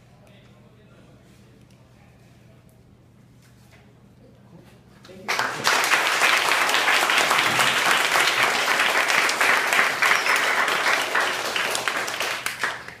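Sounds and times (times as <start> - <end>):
audience clapping: 5.3 - 13.0.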